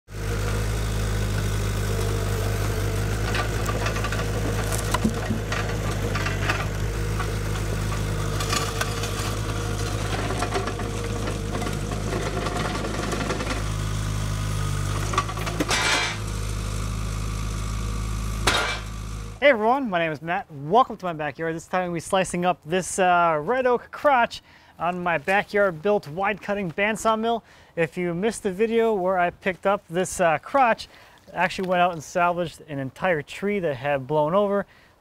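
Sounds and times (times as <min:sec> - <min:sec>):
loader engine running: 0:00.1 - 0:19.9
grapple clunking on log: 0:03.2 - 0:09.4.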